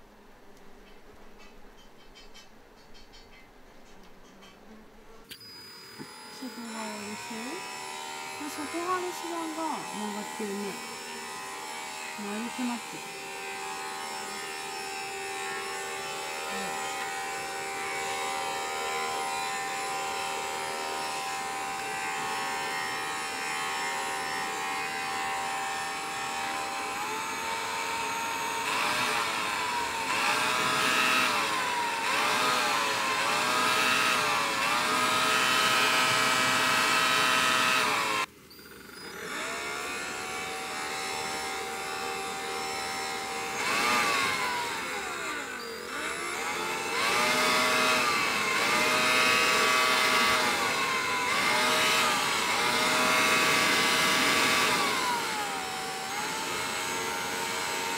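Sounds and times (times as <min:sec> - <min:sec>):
electric blower motor whine: 0:05.2 - 0:57.9.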